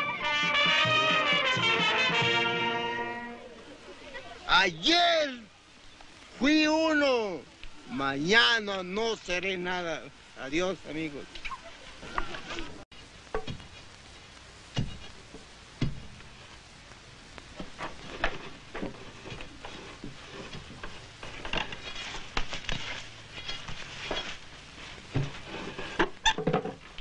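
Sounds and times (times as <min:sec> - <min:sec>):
knocks on wooden poles: 0:14.8 - 0:16.2.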